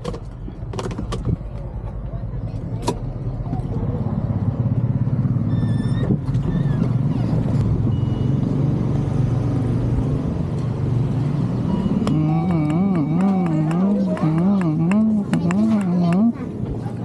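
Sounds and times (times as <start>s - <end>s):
engine and road rumble: 0.0s - 17.0s
short high beep: 7.9s - 8.4s.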